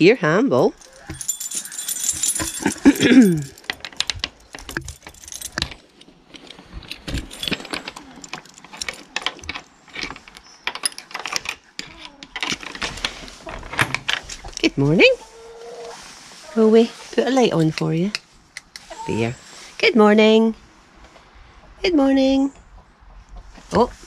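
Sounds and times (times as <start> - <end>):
keys jangling: 0.7 - 11.6
lock and latch clicks and rattles: 0.8 - 13.0.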